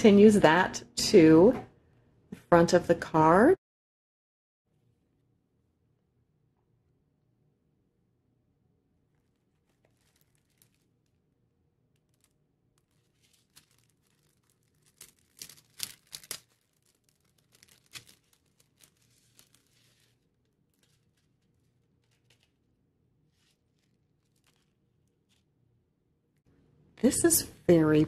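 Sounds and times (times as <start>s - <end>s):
plastic packaging crinkling: 9.2s - 11.2s, 11.9s - 25.5s.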